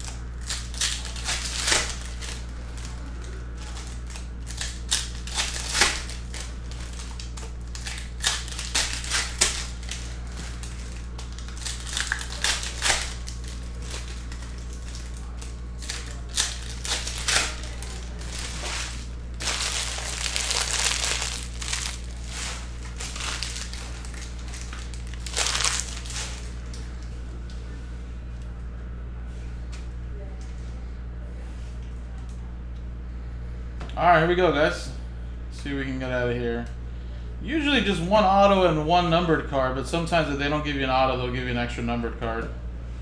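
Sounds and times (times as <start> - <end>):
foil wrappers crinkling and tearing: 0.0 - 27.1.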